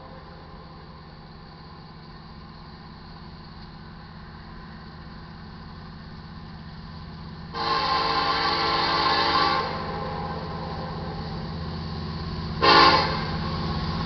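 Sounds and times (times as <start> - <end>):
diesel locomotive rumble: 0.0 - 14.0
train air horn: 7.5 - 11.1, 12.6 - 13.6.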